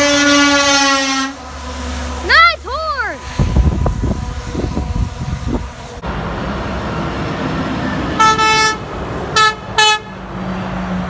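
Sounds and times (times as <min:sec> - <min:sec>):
truck horn honking: 0:00.0 - 0:06.0, 0:08.1 - 0:10.4
truck engine and tyres: 0:00.0 - 0:11.0.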